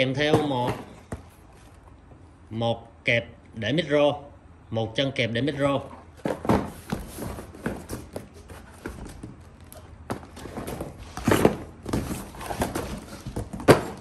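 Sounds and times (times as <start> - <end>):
cardboard boxes knocking and rustling: 0.2 - 1.7, 6.1 - 14.0.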